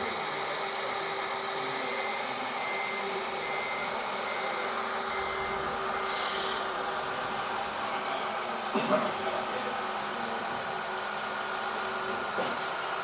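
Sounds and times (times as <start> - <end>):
model excavator mechanical whir: 0.0 - 8.6
faint high beep: 1.8 - 6.6.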